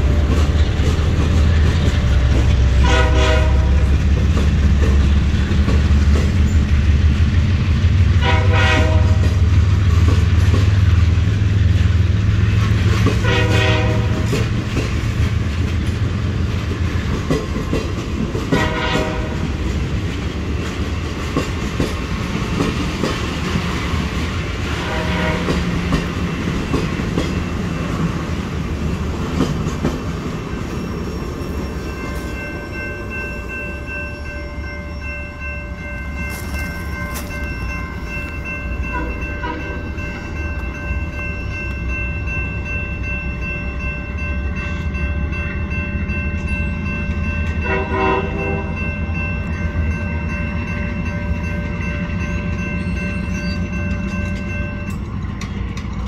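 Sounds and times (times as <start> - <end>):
crossing bell ringing: 0.0 - 29.0, 29.7 - 56.0
train wheels clattering: 0.0 - 33.6, 50.9 - 56.0
distant train horn: 2.0 - 4.2, 8.2 - 9.6, 13.2 - 14.5, 18.5 - 19.6, 24.6 - 26.1, 38.8 - 40.2, 47.5 - 49.1.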